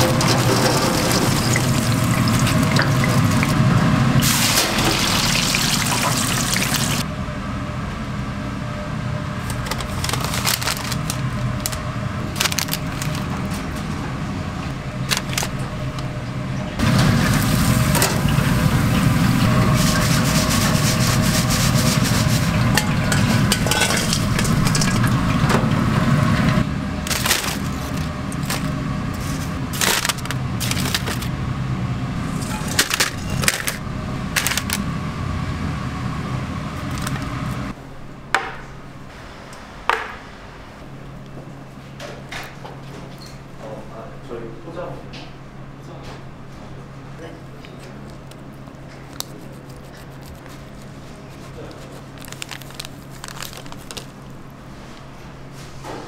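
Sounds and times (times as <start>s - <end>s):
deep fryer oil sizzling: 0.0s - 7.0s, 16.8s - 26.8s
paper wrapping crinkling: 9.4s - 13.7s, 15.0s - 15.6s, 27.1s - 31.3s, 32.7s - 34.8s, 36.8s - 37.3s, 48.0s - 54.5s.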